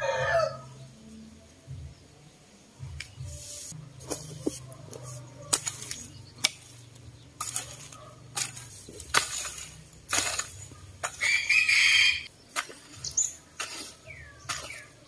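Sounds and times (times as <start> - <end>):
hoe chopping stony soil: 5.5 - 11.6, 12.5 - 15.0.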